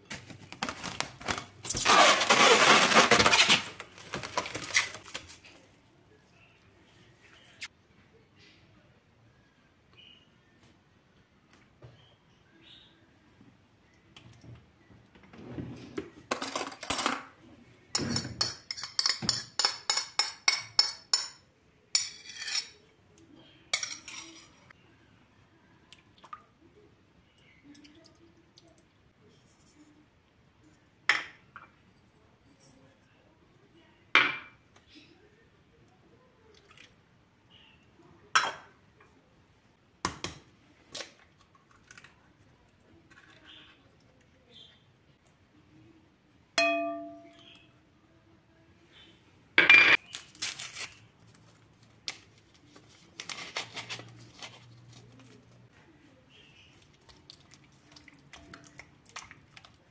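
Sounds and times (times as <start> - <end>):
spoon scraping glass dishes: 22.0 - 22.8.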